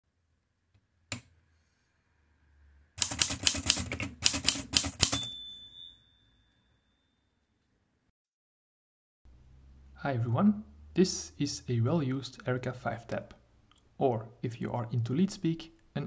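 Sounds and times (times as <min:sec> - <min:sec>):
typewriter typing: 0:03.0 - 0:05.3
typewriter bell ding: 0:04.4 - 0:07.2.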